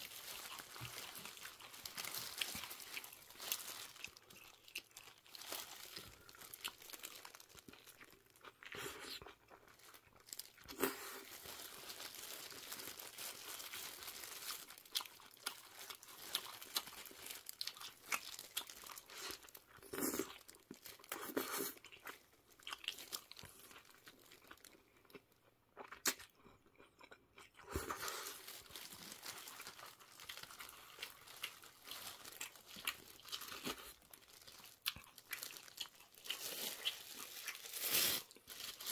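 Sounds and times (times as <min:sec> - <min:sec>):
chewing and biting food: 0:00.0 - 0:11.2, 0:13.6 - 0:38.9
plastic glove and wrapper crinkling: 0:00.0 - 0:24.9, 0:27.7 - 0:38.9.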